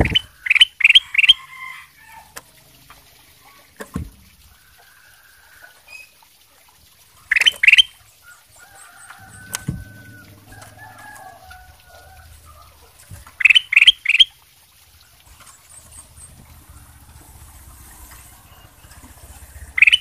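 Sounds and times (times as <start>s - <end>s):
bird calling rising notes: 8.6s - 14.4s, 15.3s - 20.0s.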